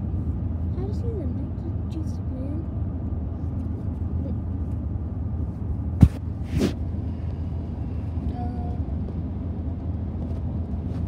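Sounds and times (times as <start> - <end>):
car cabin rumble: 0.0 - 11.0
sharp knock: 6.0 - 6.2.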